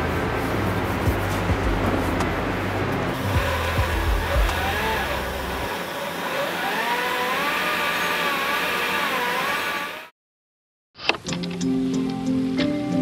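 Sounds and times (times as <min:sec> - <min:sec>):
bass line: 0:00.0 - 0:05.7
wavering sliding lead melody: 0:00.6 - 0:05.8.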